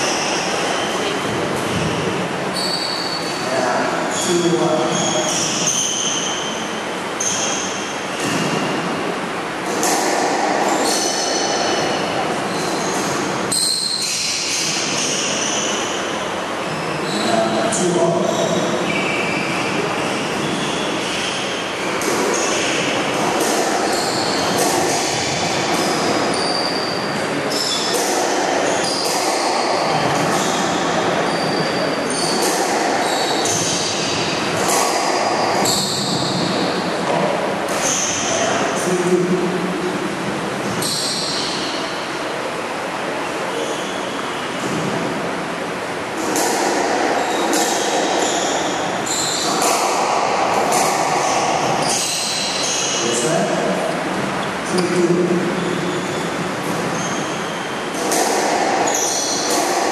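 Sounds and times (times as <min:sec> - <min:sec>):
racket and ball knocking walls: 0:08.1 - 0:13.4, 0:19.7 - 0:26.6, 0:27.5 - 0:38.4, 0:46.2 - 0:52.8, 0:57.9 - 0:59.9.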